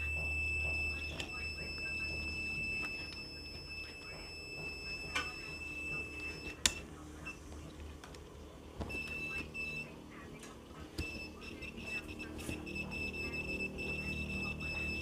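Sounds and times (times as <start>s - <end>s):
high-pitched buzzer beep: 0.0s - 6.6s, 8.9s - 10.0s, 11.0s - 15.0s.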